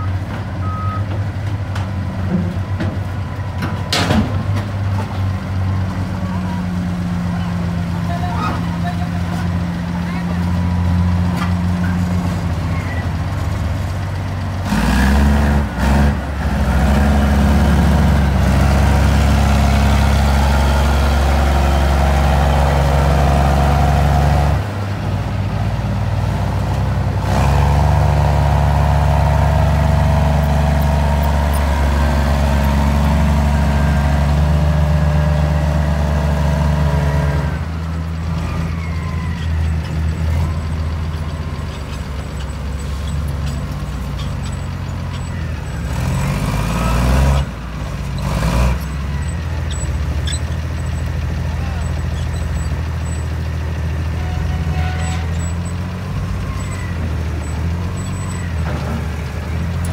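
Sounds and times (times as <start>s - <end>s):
heavy diesel engine under load: 0.0s - 59.9s.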